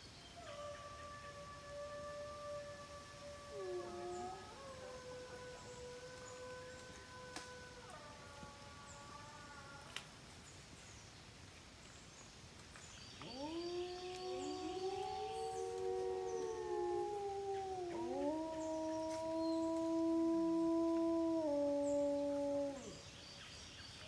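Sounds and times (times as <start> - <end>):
wolves howling: 0.4 - 9.8, 13.2 - 23.0.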